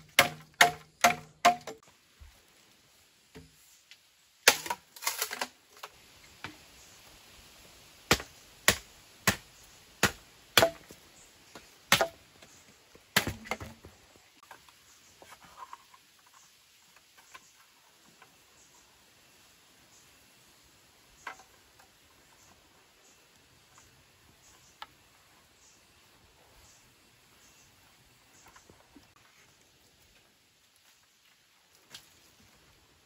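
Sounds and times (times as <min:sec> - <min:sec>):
machete chopping bamboo: 0:00.0 - 0:01.8, 0:04.4 - 0:05.4, 0:08.1 - 0:11.0, 0:11.9 - 0:12.2, 0:13.1 - 0:13.8.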